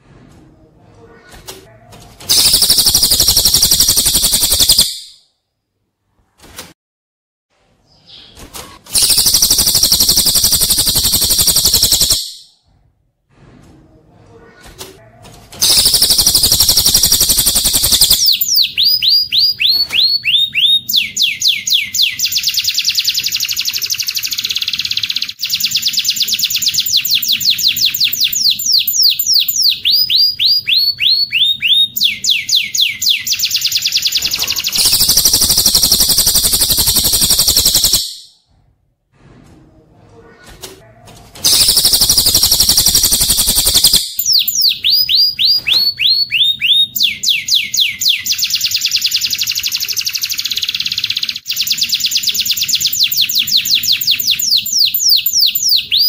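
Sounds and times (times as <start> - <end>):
downward-slurred bird whistles: 41.5 - 49.4.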